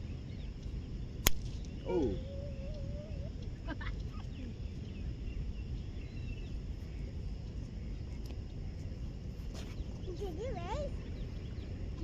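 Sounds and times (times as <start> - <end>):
low outdoor rumble: 0.0 - 12.0
bird chirps: 1.5 - 7.0.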